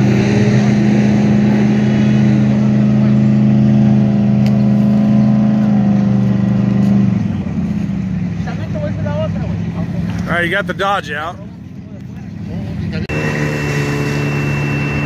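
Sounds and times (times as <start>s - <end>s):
truck engine revving under load: 0.0s - 8.8s, 12.4s - 15.0s.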